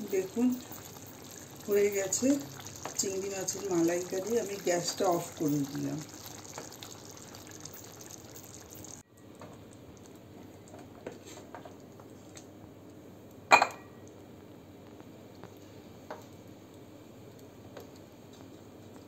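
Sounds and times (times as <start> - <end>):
curry bubbling in a pan: 0.0 - 13.4.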